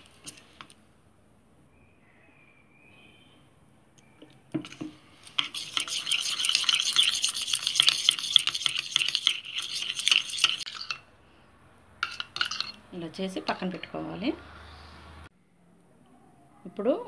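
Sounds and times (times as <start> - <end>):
spoon clinking and scraping bowl: 4.6 - 11.1, 12.0 - 12.9
spoon knocking bowl: 12.0 - 12.8.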